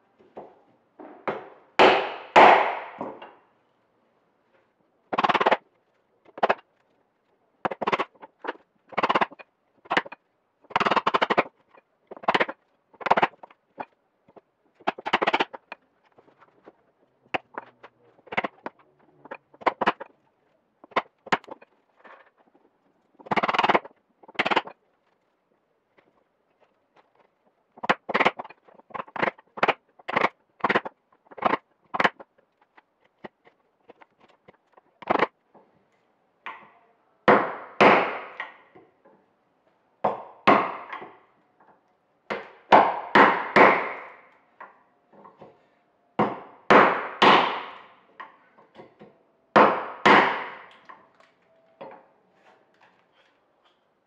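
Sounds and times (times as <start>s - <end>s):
chisel struck by blows: 1.3s - 3.2s, 37.3s - 38.6s, 40.1s - 41.1s, 42.3s - 44.2s, 46.2s - 47.9s, 49.6s - 50.7s.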